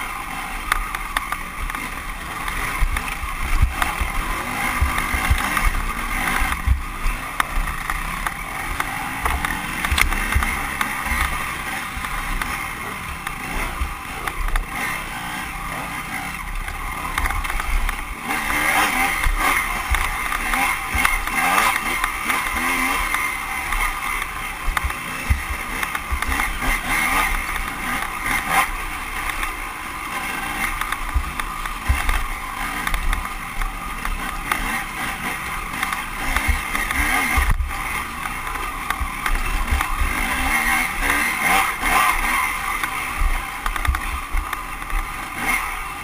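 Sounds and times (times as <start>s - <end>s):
dirt bike engine revving: 0.0s - 46.0s.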